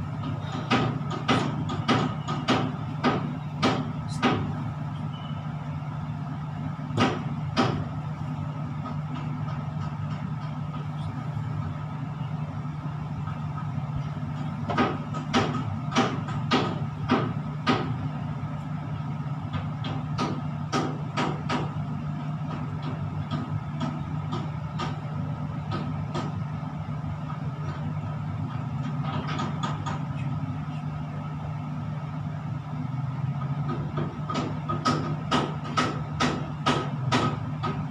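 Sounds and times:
low machine hum: 0.0s - 37.9s.

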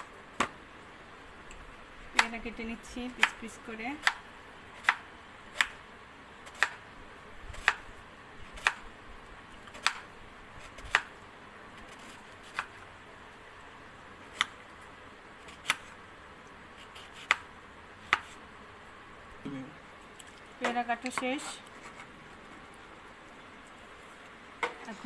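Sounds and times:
knife slicing fruit: 9.6s - 11.2s, 11.8s - 12.9s, 15.4s - 16.0s, 16.7s - 18.4s.

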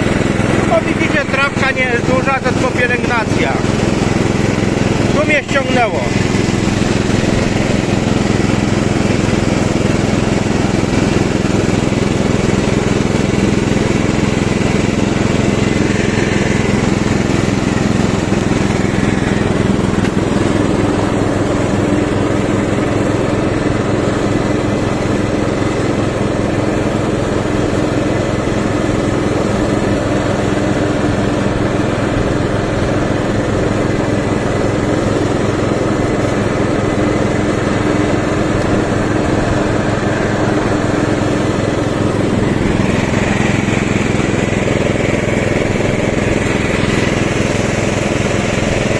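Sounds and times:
lawn tractor engine running: 0.0s - 48.9s.

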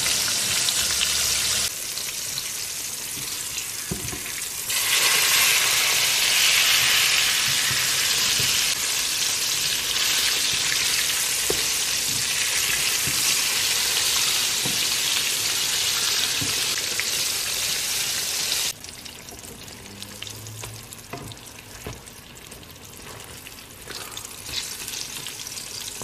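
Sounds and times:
mushrooms sizzling in hot oil: 0.0s - 18.8s.

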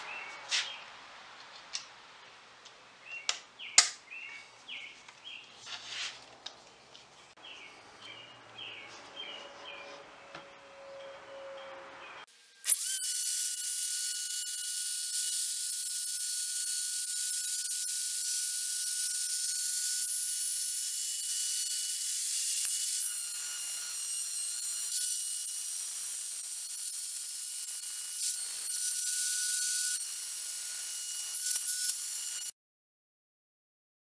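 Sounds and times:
router cutting wood: 12.3s - 32.5s.

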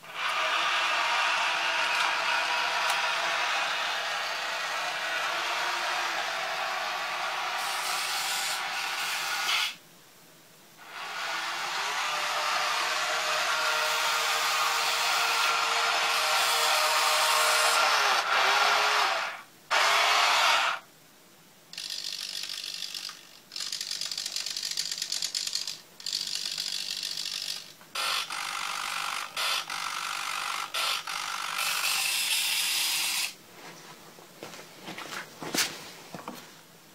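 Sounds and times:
toy tank motors whirring: 0.0s - 9.8s, 10.8s - 20.8s, 21.7s - 33.4s.

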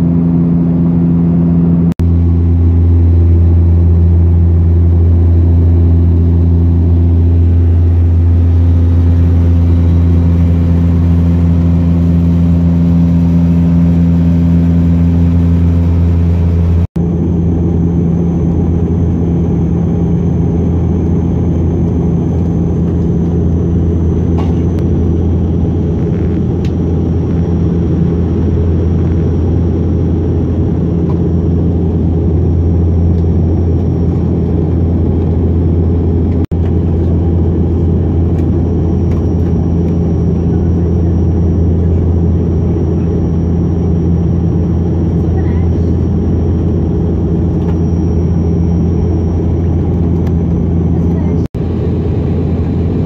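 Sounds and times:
faint high whine: 0.0s - 33.9s
propeller cabin drone: 0.0s - 53.0s.

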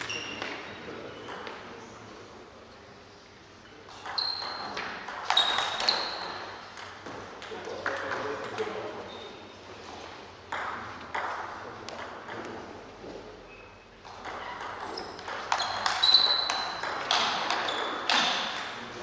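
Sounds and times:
table tennis ball hits: 0.0s - 1.6s, 3.9s - 8.9s, 10.5s - 12.7s, 14.0s - 19.0s.

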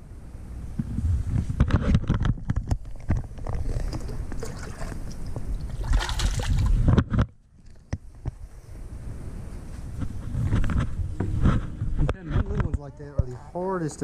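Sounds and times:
wind rumble: 0.0s - 13.4s
light splash: 3.6s - 6.8s
handling knocks and rubbing: 9.9s - 13.4s.

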